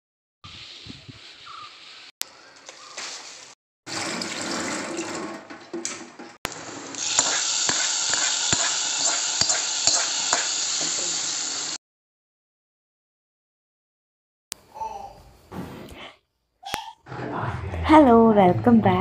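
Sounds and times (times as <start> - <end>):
spices sizzling in hot oil: 6.5 - 11.8
steel spoon clinking on pot: 7.1 - 10.9.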